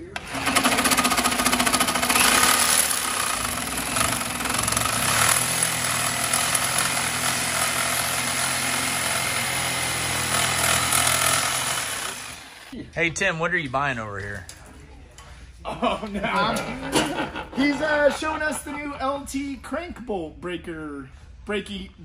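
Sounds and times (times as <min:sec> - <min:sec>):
reciprocating saw cutting metal: 0:00.2 - 0:12.8.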